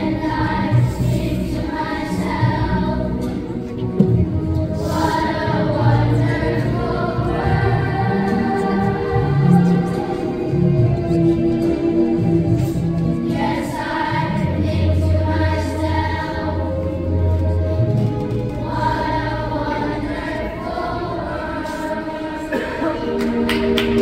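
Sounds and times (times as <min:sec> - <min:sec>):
children's choir singing: 0:00.0 - 0:24.0.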